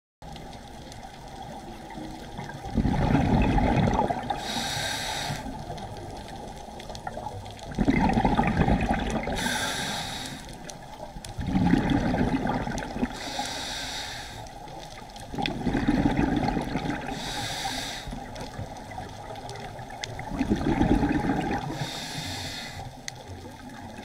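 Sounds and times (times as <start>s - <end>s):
regulator exhale bubbling: 2.4s - 5.9s, 7.1s - 14.7s, 15.3s - 18.4s, 19.8s - 23.0s
regulator inhale hiss: 4.3s - 5.8s, 9.3s - 10.7s, 13.1s - 14.7s, 17.0s - 18.4s, 21.6s - 23.1s.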